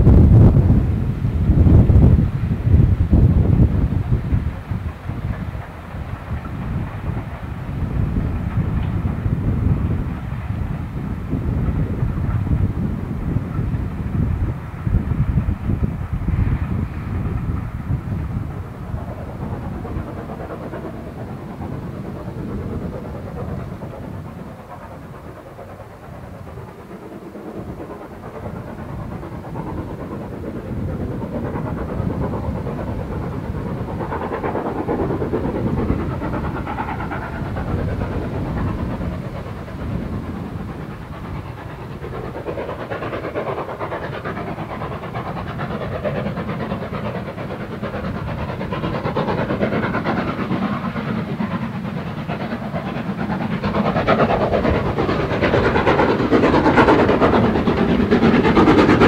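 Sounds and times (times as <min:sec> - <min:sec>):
steam locomotive approaching: 0:00.0 - 0:59.0.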